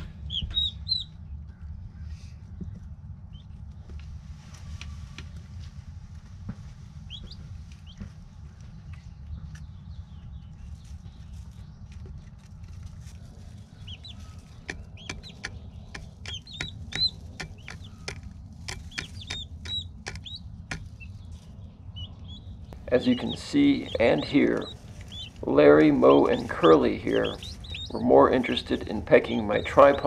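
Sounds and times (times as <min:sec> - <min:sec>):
poults peeping: 0:00.0 - 0:01.3, 0:07.0 - 0:30.0
low hum: 0:00.0 - 0:30.0
pecking taps on tripod: 0:14.7 - 0:20.9.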